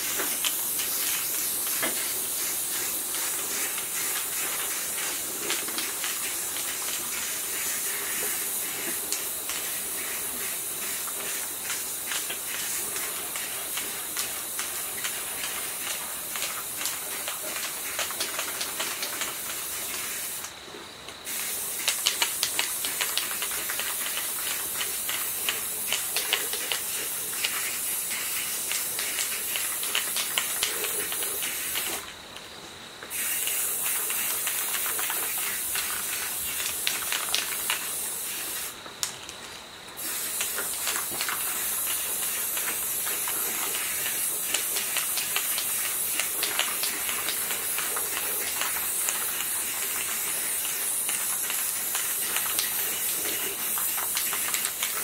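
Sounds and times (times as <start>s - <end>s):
spray paint can hissing: 0.0s - 20.6s, 21.2s - 32.1s, 33.0s - 38.8s, 40.0s - 55.0s.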